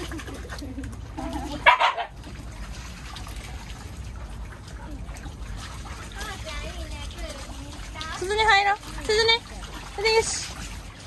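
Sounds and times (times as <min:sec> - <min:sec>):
dogs splashing in water: 0:00.0 - 0:11.0
dog barking: 0:01.6 - 0:02.1.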